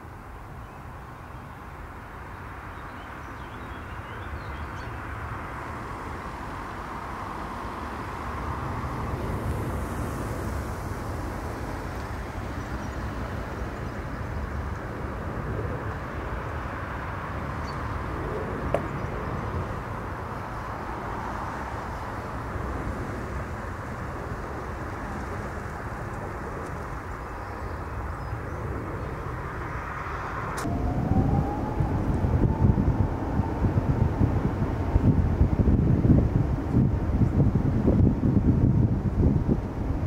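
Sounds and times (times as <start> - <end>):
jet engines rumbling: 3.9 - 40.0.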